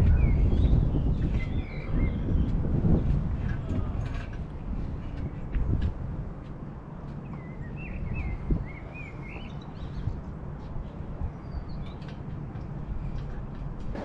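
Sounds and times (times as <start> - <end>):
steady low rumble: 0.0 - 14.0
bird chirping: 7.2 - 10.2, 11.3 - 12.2.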